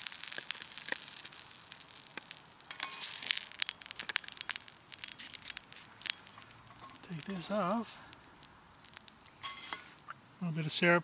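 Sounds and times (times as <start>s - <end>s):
hot oil crackling and popping: 0.0s - 10.2s
metal spatula scraping a pan: 2.7s - 3.3s, 9.4s - 10.0s.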